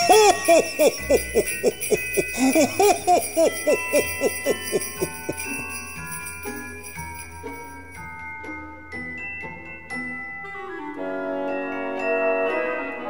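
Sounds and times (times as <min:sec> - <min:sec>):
sleigh bells jingling: 0:00.0 - 0:10.6
soft christmas background music: 0:00.0 - 0:13.0.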